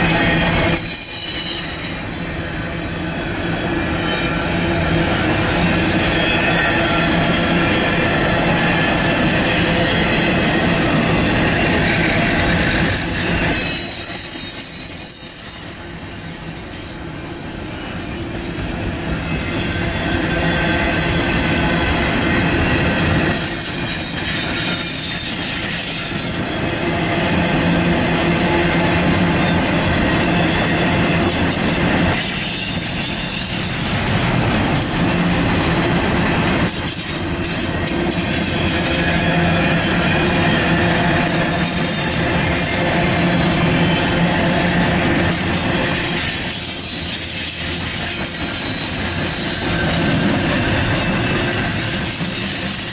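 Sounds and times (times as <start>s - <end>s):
train wheels rumbling on rails: 0.0s - 52.9s
high-pitched wheel squeal: 0.2s - 2.1s, 12.9s - 18.3s, 23.3s - 26.3s.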